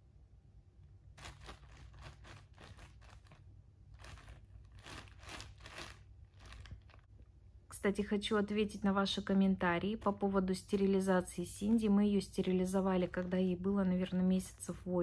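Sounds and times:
package crinkling and rustling: 1.1s - 7.2s.

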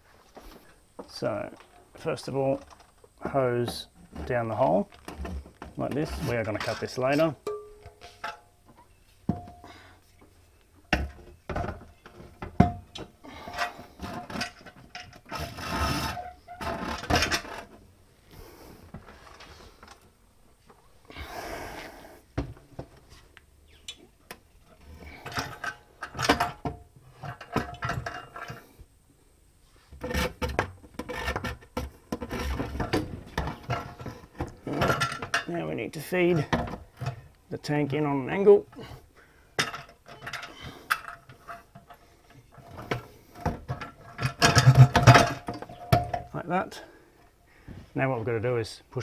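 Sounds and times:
metal tank knocking and clunking: 9.3s - 9.6s, 10.9s - 13.1s, 42.8s - 46.3s
metal scraping and rubbing: 13.3s - 17.8s.

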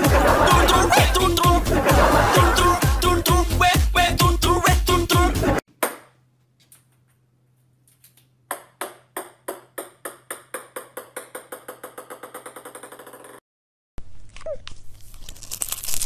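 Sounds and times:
ping-pong ball bouncing: 8.5s - 13.4s.

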